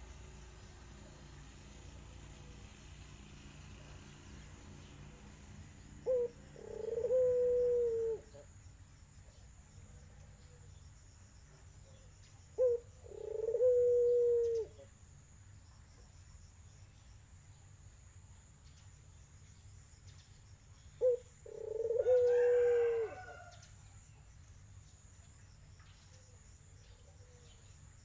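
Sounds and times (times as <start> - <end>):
dove cooing: 6.0 - 8.5, 12.6 - 14.9, 21.0 - 23.5.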